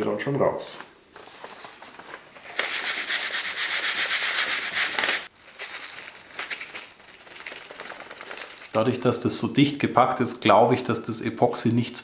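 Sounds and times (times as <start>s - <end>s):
granules trickling into wood: 5.1s - 9.2s.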